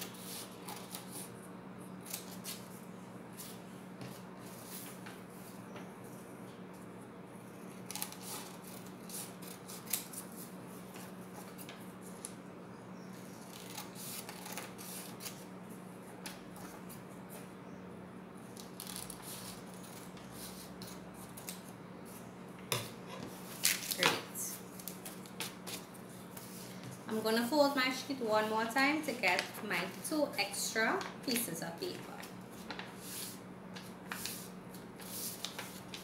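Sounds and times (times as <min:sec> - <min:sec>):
paper rustling: 0:32.5 - 0:36.0.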